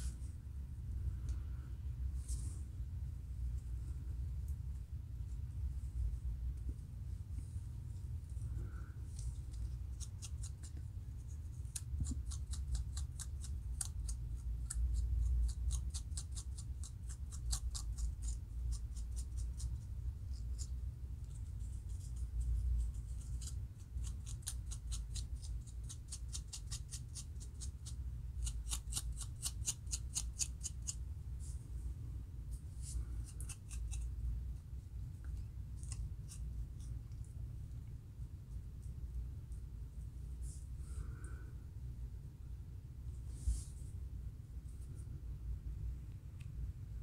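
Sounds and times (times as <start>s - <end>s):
low steady hum: 0.0s - 47.0s
comb scratching scalp: 15.7s - 31.6s.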